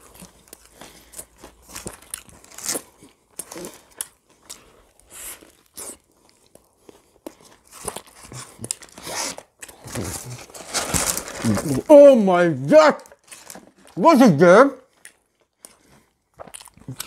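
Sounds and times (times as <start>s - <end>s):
crunching and chewing: 0.0s - 11.8s, 14.8s - 17.0s
paper wrapper crinkling: 7.7s - 14.4s.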